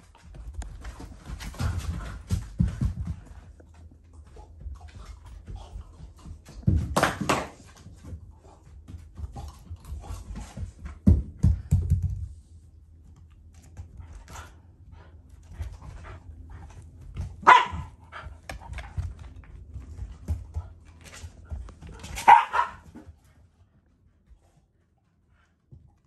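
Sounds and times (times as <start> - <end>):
dogs scuffling: 0.0 - 12.4
dogs barking: 17.4 - 18.0, 22.2 - 22.9.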